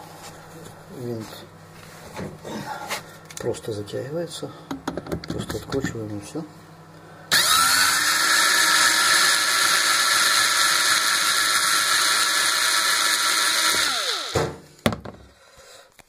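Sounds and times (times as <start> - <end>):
cordless drill motor whine: 7.3 - 14.6.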